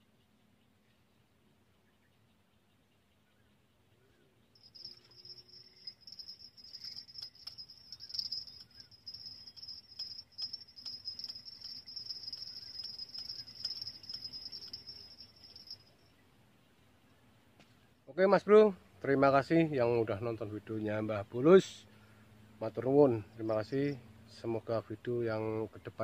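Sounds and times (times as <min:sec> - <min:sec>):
high insect trill: 0:04.5 - 0:16.2
faint scattered clicks: 0:04.6 - 0:16.0.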